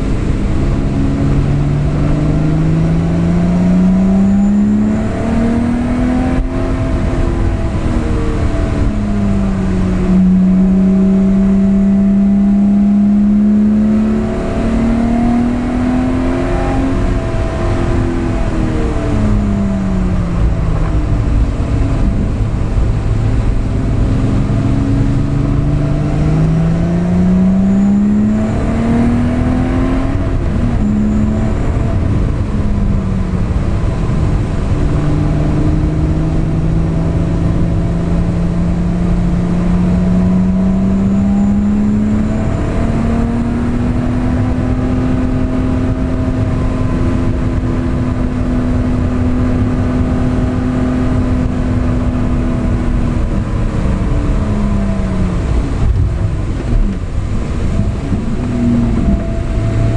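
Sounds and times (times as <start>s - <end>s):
car engine revving: 0.0s - 59.9s
tyre and road noise: 0.0s - 59.9s.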